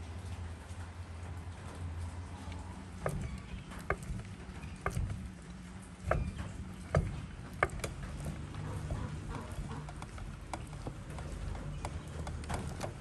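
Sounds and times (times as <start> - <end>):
sharp hard knocks: 6.0 - 13.0.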